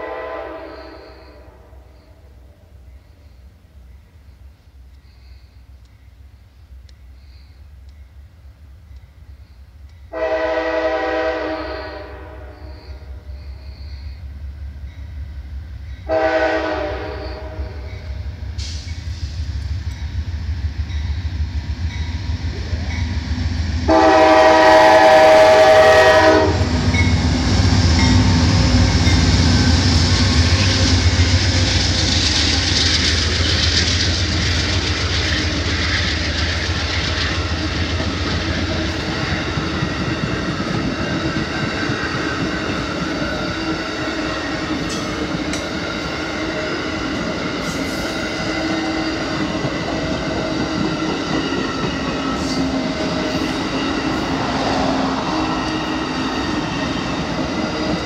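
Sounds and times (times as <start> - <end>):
train horn blasts: 0.0 - 2.2, 10.1 - 14.2, 16.0 - 18.4, 23.8 - 31.5, 47.8 - 51.1
freight train rumbling: 0.0 - 58.0
train wheels roaring on rails: 0.0 - 58.0.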